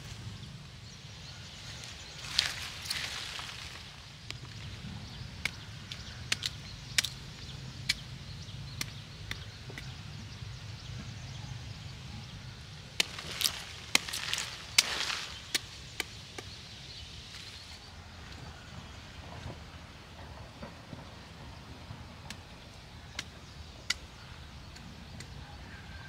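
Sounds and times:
leaves rustling: 0.0s - 5.0s, 12.8s - 18.3s
machete chopping: 13.0s - 16.6s.

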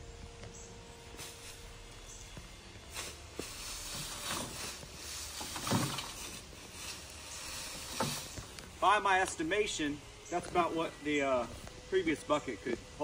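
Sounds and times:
pitchfork scraping through dry straw: 1.1s - 8.6s.

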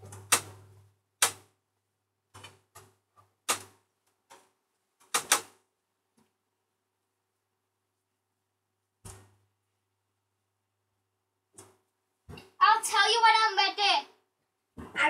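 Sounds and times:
sharp knocks and clicks: 2.3s - 5.6s.

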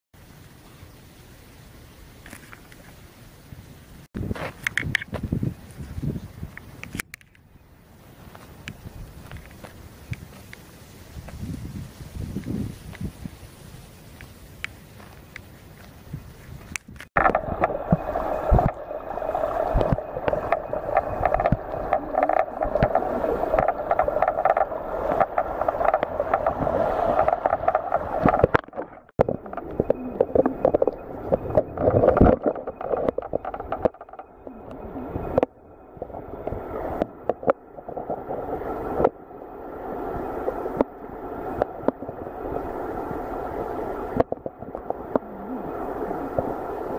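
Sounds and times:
camera knocking and scraping: 4.2s - 5.3s, 19.8s - 34.3s
muffled underwater stream gurgling: 17.2s - 46.9s.

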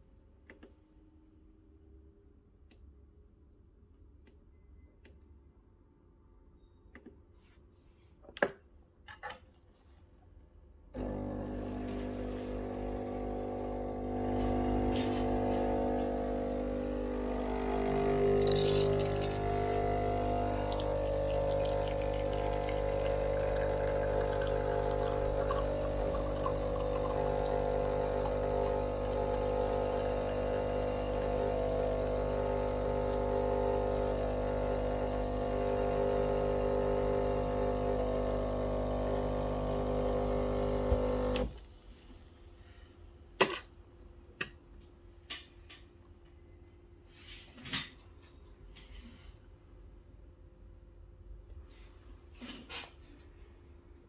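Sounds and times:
espresso machine pump buzzing: 11.0s - 41.6s.

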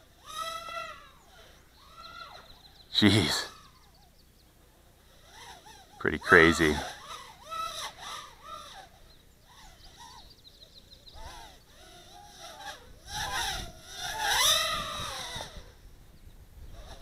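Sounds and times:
quadcopter motors whining: 0.0s - 4.4s, 5.0s - 16.0s.

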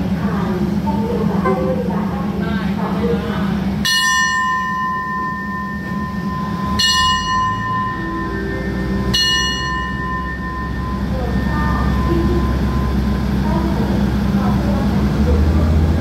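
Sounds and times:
diesel railcar idling hum: 0.0s - 16.0s
metal bell ringing: 3.9s - 13.1s.

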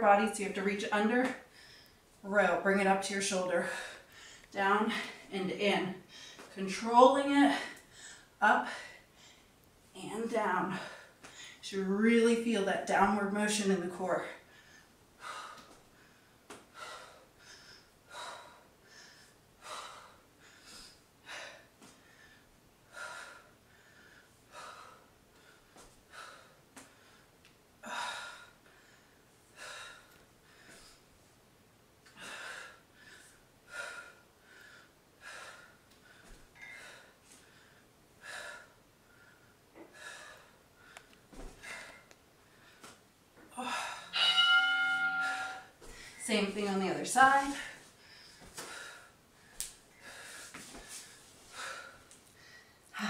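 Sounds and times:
woman breathing hard: 1.5s - 2.0s, 14.4s - 31.1s, 32.1s - 46.2s, 47.6s - 53.0s.

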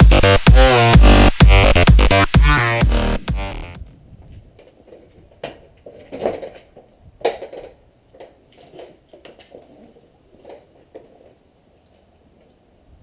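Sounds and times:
moped knocks and rattles: 3.8s - 11.4s.

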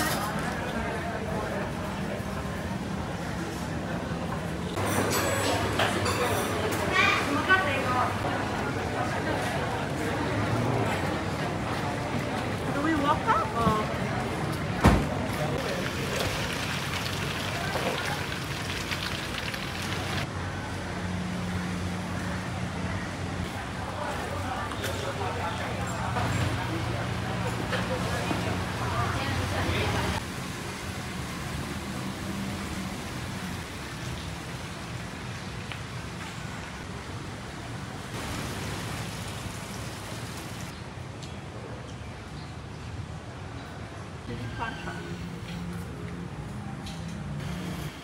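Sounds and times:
low traffic rumble: 0.0s - 48.0s
light rain pattering: 15.5s - 20.3s, 38.1s - 40.8s.

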